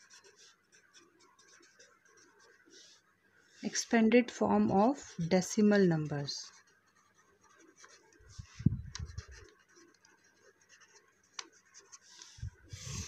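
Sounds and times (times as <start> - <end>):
pen scratching on paper: 0.0 - 4.0, 4.8 - 13.0.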